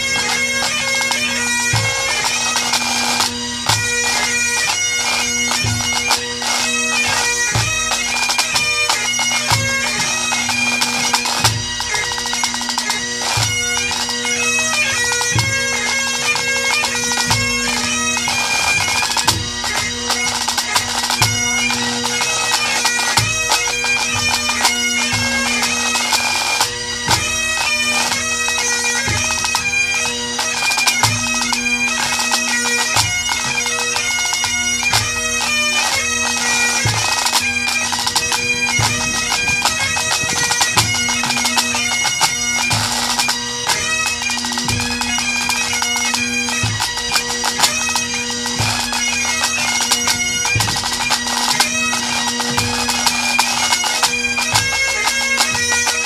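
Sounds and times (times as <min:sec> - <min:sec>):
bagpipes playing: 0:00.0 - 0:56.0
tenor and bass drums beating: 0:36.8 - 0:43.0.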